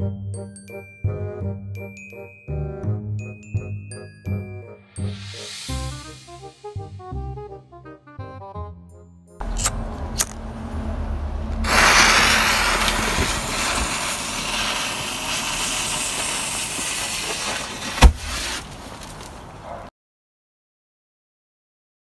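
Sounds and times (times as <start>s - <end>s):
flash powder fizzing hiss: 5.2s - 6.5s, 11.6s - 18.6s
sharp crack: 9.4s - 10.6s, 11.5s - 19.3s.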